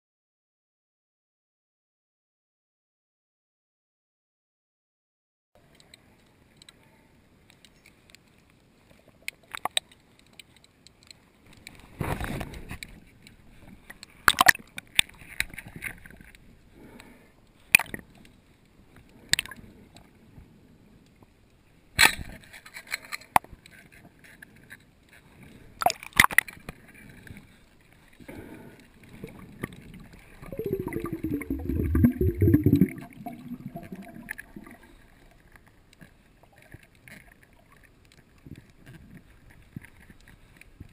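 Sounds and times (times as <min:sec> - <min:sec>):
faint steady hiss: 0:05.6 - 0:40.9
sharp underwater clicks and knocks: 0:07.5 - 0:16.4, 0:25.8 - 0:27.4
low gurgling: 0:29.1 - 0:35.3.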